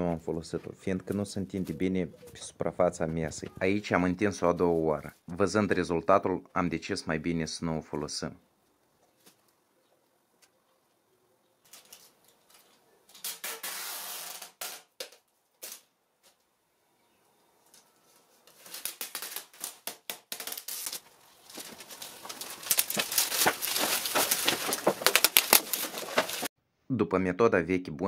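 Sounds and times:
cling film rustling and crinkling: 11.6 - 16.5, 17.6 - 26.5.

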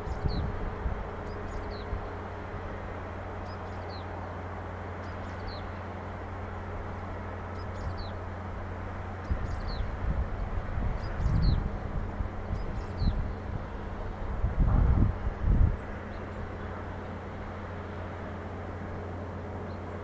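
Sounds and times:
wind on microphone: 0.0 - 2.1, 9.2 - 16.6
steady low hum: 0.0 - 20.0.

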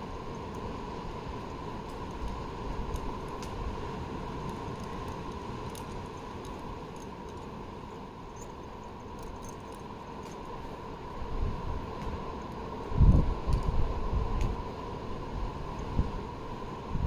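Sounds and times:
wind on microphone: 11.2 - 17.0.

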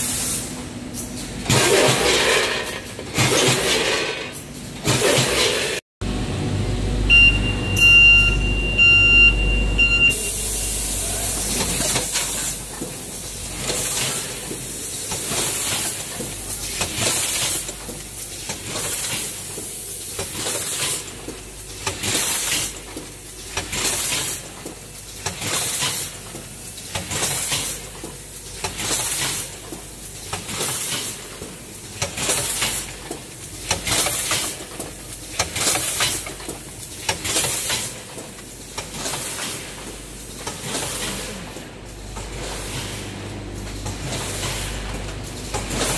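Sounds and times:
packing machine running: 0.4 - 45.9
steady high beep: 7.1 - 10.9.

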